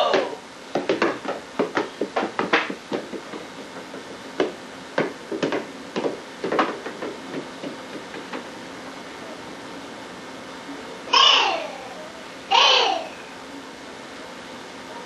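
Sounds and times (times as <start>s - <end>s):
hands knocking on hard floor: 0.1s - 8.5s.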